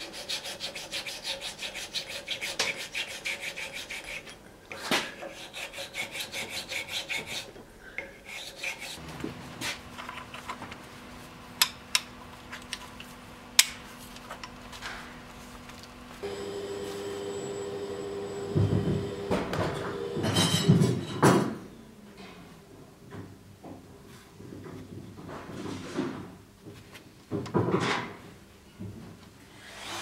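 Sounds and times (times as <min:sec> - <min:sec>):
file rasping on wood: 0:00.0 - 0:04.4, 0:05.1 - 0:07.6, 0:08.2 - 0:09.0
low steady hum: 0:09.0 - 0:20.3.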